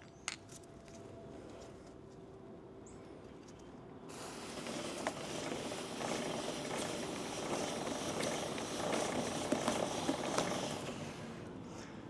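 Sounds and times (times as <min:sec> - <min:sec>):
aerosol spray hissing: 0:04.1 - 0:11.2.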